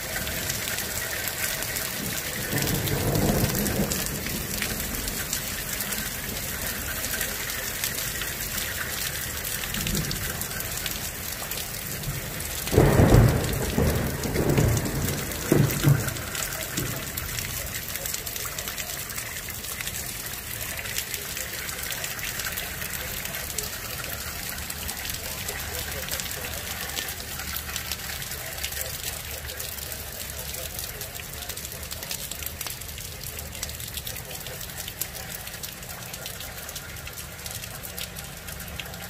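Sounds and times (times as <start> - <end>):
thunder rumbling: 0.0 - 7.5, 9.7 - 17.9
rain falling steadily: 0.0 - 39.0
loud thunder clap: 12.7 - 17.2.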